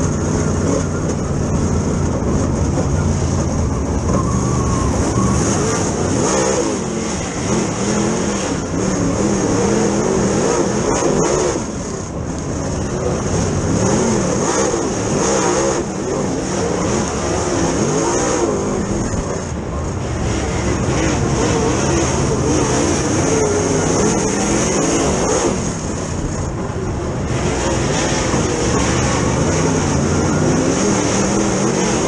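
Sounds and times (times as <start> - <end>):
race car engine revving: 0.0 - 32.0
steady high whine: 0.0 - 32.0.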